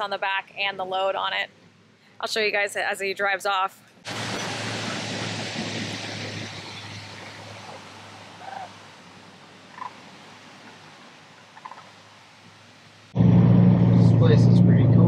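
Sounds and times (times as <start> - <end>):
truck driving off: 4.1 - 9.0, 13.1 - 15.0
truck engine hum: 4.1 - 15.0.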